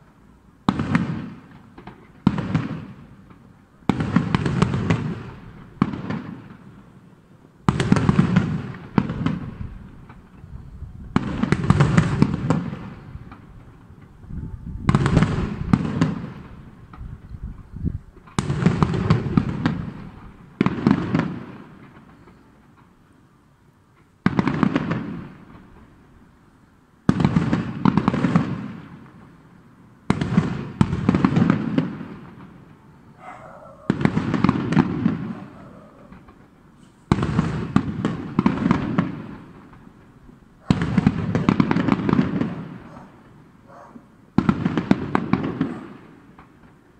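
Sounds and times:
fireworks shells booming: 0.0 - 23.2, 23.9 - 46.9
rumbling crackling firework tails: 7.7 - 22.5, 30.1 - 46.8.

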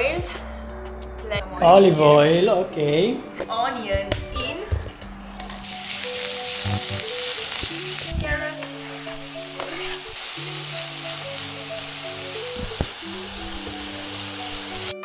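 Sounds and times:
onion sizzling in hot oil: 5.4 - 15.0.

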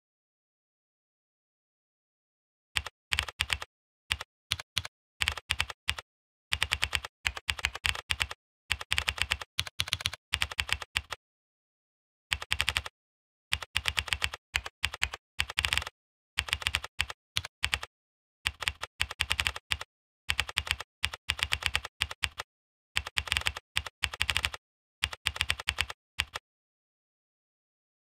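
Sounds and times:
computer keyboard typing: 2.8 - 11.2, 12.3 - 12.9, 13.6 - 17.9, 18.5 - 26.4.

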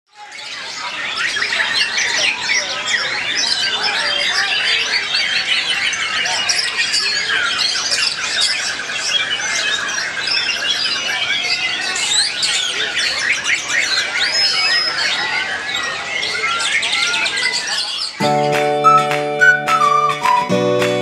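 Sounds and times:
songbird whistling and trilling: 1.2 - 21.0.

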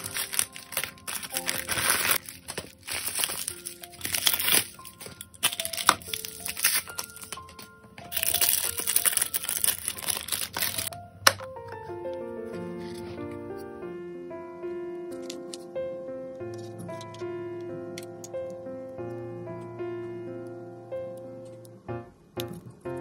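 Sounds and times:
plastic packaging crinkling: 0.0 - 11.0
background music: 0.0 - 23.0.

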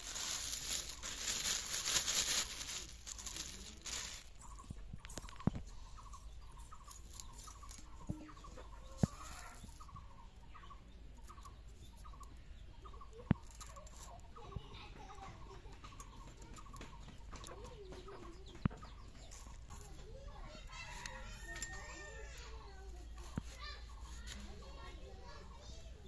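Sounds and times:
chicken clucking: 4.4 - 25.6.

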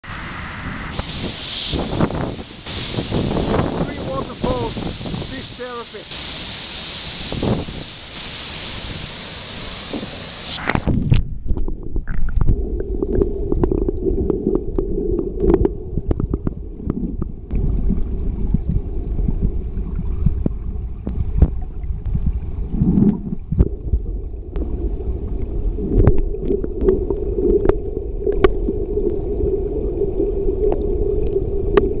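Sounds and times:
waterfall rushing: 0.0 - 10.8
muffled underwater rumble: 0.6 - 6.2, 9.9 - 32.0.

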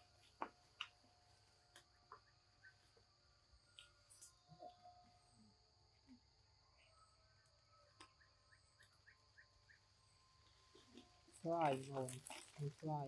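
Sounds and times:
faint bird chirps: 1.6 - 11.5.

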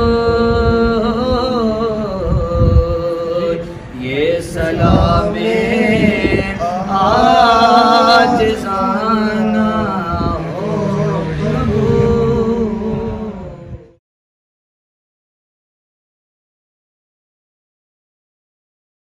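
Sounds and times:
men singing unaccompanied: 0.0 - 14.0.

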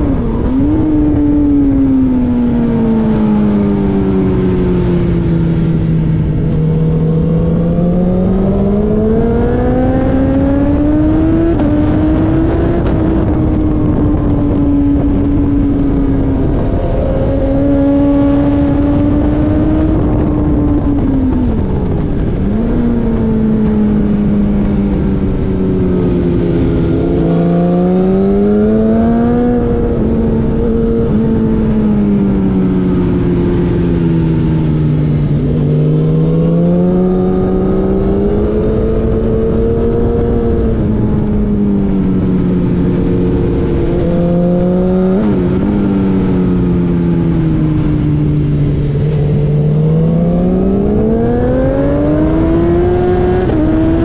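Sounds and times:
road rumble: 0.0 - 54.0
wind noise: 0.0 - 54.0
race car engine accelerating: 33.9 - 54.0.

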